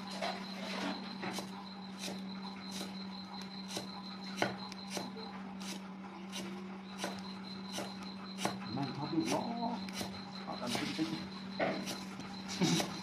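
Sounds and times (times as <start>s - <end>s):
steady low hum: 0.0s - 13.0s
cleaver chopping on wooden block: 3.7s - 5.1s, 7.0s - 8.6s.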